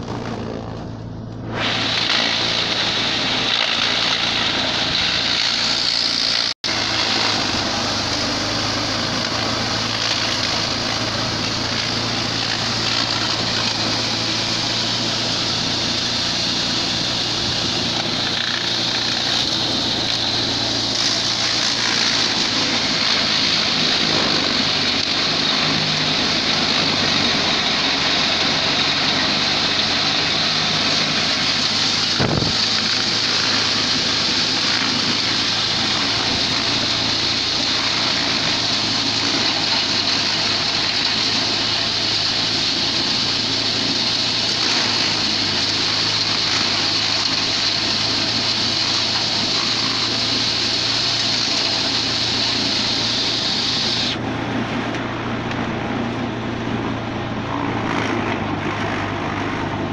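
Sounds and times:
low drive hum: 0.0 - 28.5
hammer mill shredding stalks: 0.0 - 59.9.

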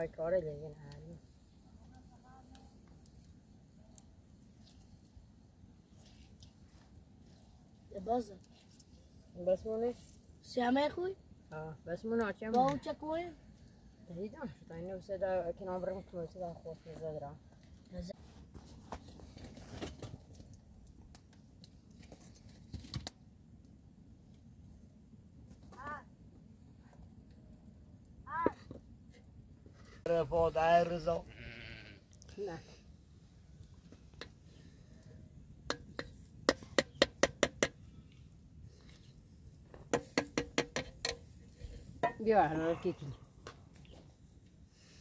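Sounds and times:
metal spoon tapping metal pot: 35.7 - 37.8, 39.9 - 41.2.

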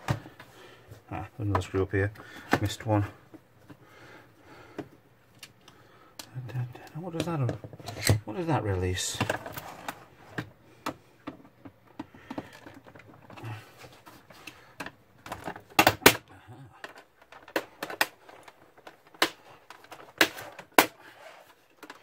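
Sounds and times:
plastic clips clicking and cracking: 14.4 - 21.0, 21.7 - 22.0.

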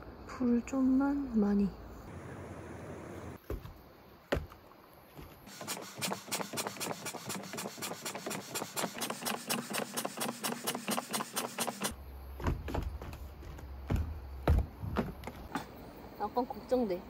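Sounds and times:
footsteps in sandals on wooden deck: 3.4 - 8.2, 12.2 - 15.7.

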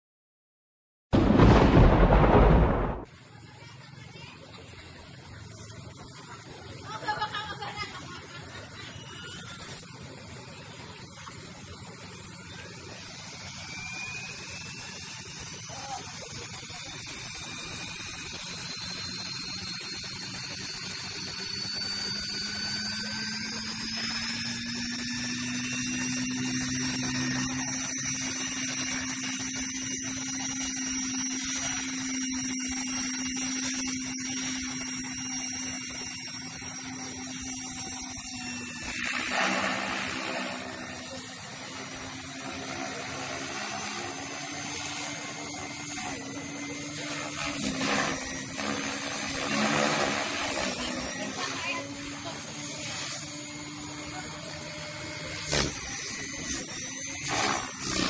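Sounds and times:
model helicopter rotor whine: 3.0 - 58.0.

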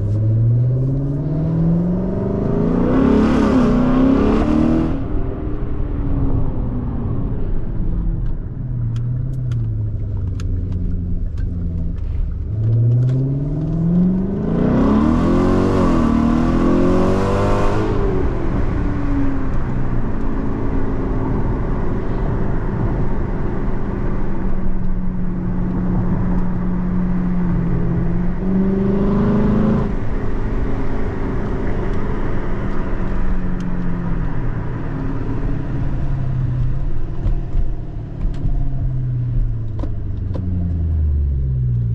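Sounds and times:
car engine revving from inside cabin: 0.0 - 5.1, 11.7 - 34.2.

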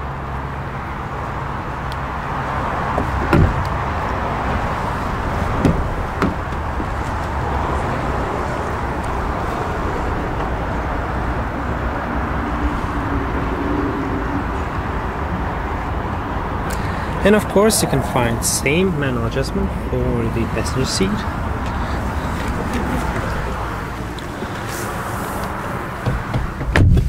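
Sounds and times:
car door thumps: 2.9 - 3.7, 5.6 - 7.1, 26.0 - 27.0.

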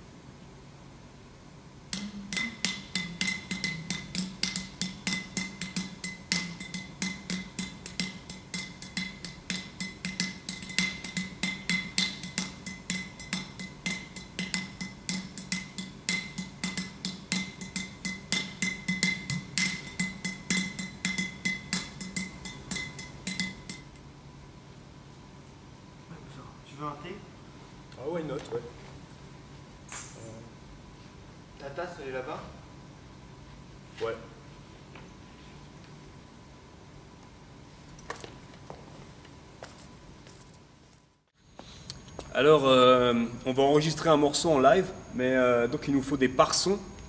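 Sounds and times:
clay pot drum strokes: 1.9 - 23.9.

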